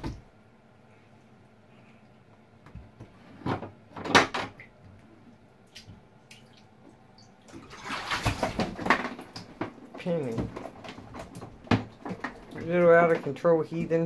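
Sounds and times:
splashes in bath water: 5.7 - 10.4.

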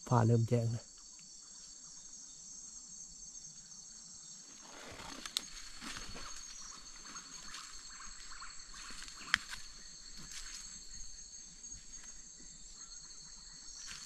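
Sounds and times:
crickets chirping: 0.0 - 14.0
footsteps on dry leaves: 4.5 - 12.2.

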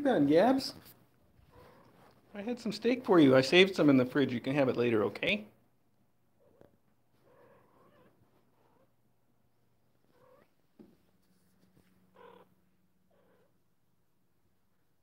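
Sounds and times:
cat mewing: 1.4 - 2.0, 6.4 - 8.9, 10.1 - 10.5, 12.1 - 13.6.

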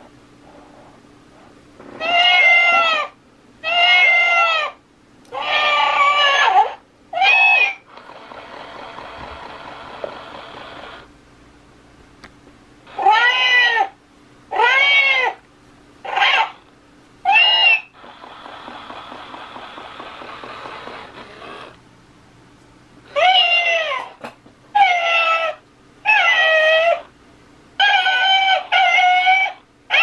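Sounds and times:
toy cat meows: 2.0 - 7.8, 12.9 - 13.9, 14.5 - 15.4, 17.3 - 17.9, 27.8 - 30.0
toy purring sound: 17.4 - 21.8.

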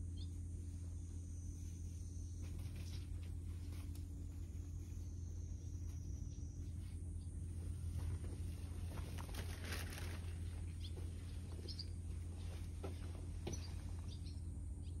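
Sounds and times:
low outdoor hum: 0.0 - 15.0
small birds chirping: 0.0 - 15.0
scratchy rustle: 8.2 - 10.6.

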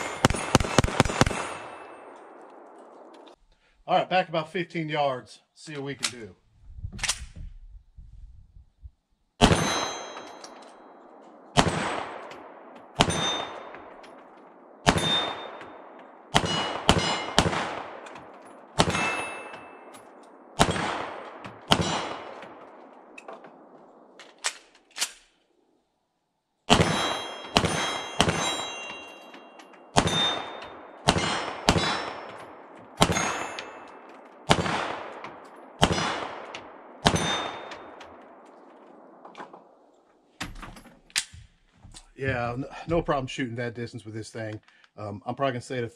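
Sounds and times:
pistol shots: 0.0 - 3.4, 9.4 - 25.2, 26.7 - 39.8
steel plate target clanging: 9.5 - 11.0, 13.0 - 14.3, 14.9 - 20.1, 26.8 - 34.3, 37.1 - 38.1.

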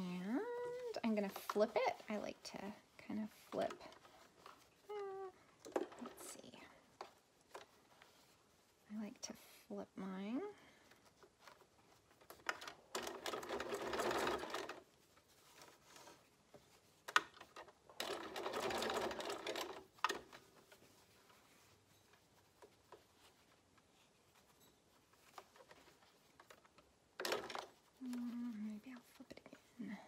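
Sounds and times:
fabric handling: 0.0 - 30.0
sewing machine stitching: 12.4 - 14.8, 17.1 - 20.4, 27.2 - 27.8.

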